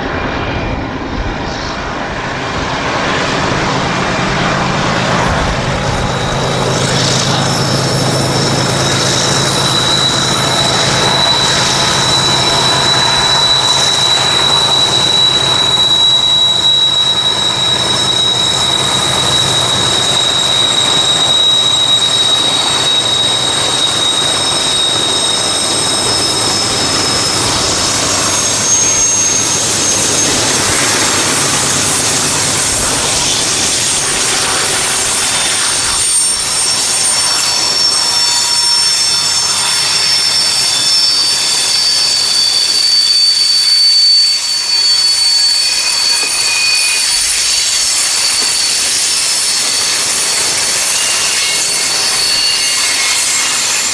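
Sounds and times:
diesel locomotives droning: 0:00.0 - 0:53.9
high-pitched wheel squeal: 0:00.0 - 0:53.9
boxcars rolling past: 0:02.1 - 0:38.5.

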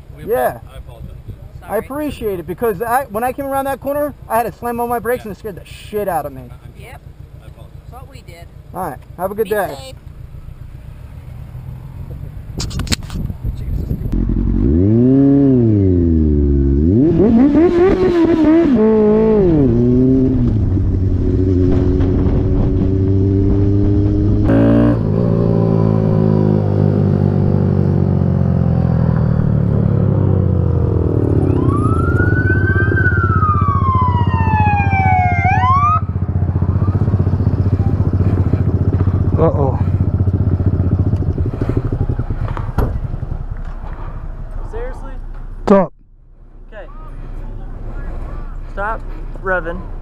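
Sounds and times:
motorcycle engine revving: 0:03.2 - 0:44.8
police siren wailing and whooping: 0:31.1 - 0:37.2.

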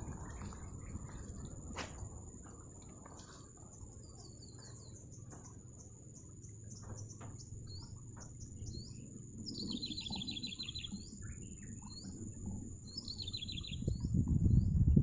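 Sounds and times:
low wind rumble: 0:00.0 - 0:02.8, 0:07.6 - 0:15.0
songbird calling: 0:00.0 - 0:15.0.

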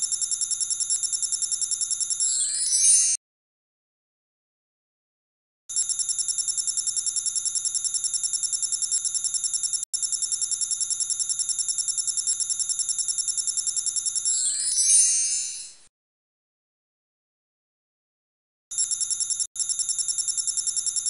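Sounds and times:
bell-like ringing trill: 0:14.3 - 0:15.9.

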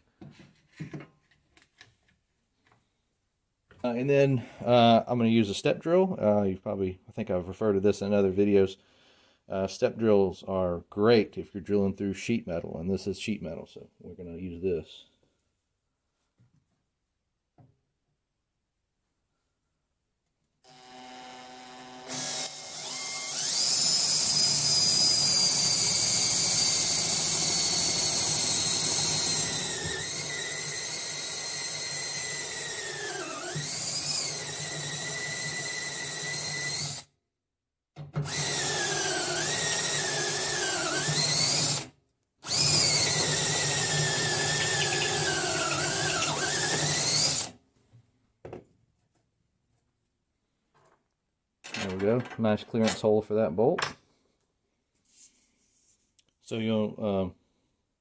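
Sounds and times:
drill bit cutting steel: 0:20.7 - 0:37.1, 0:38.3 - 0:47.5.

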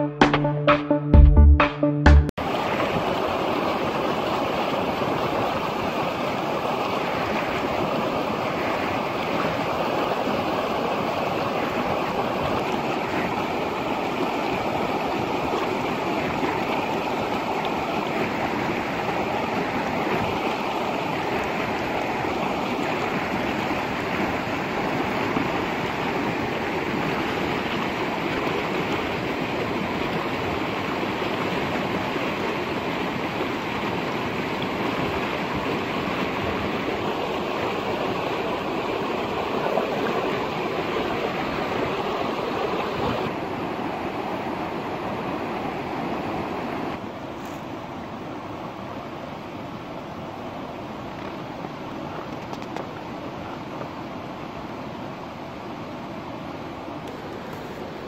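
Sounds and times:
shallow river rushing: 0:02.4 - 0:58.0.

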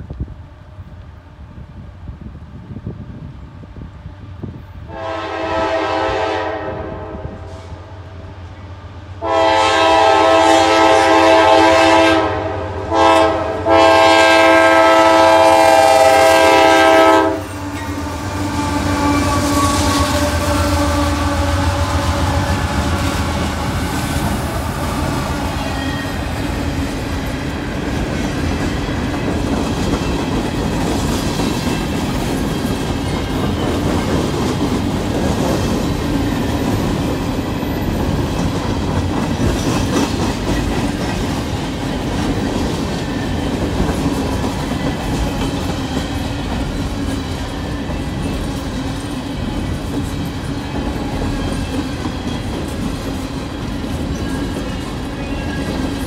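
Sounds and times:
train horn blasts: 0:04.9 - 0:08.2, 0:09.2 - 0:26.3
train wheels clattering on rails: 0:14.8 - 0:56.0.

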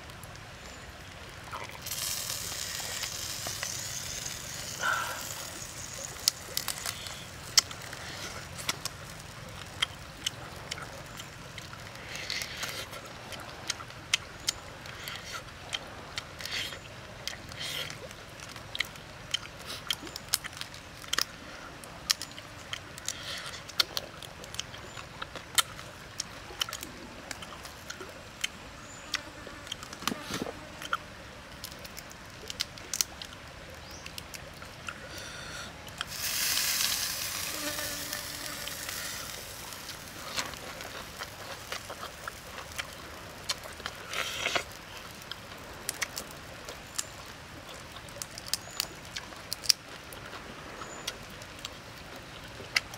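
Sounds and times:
prawn shells crackling: 0:01.6 - 0:10.4, 0:36.0 - 0:46.2.

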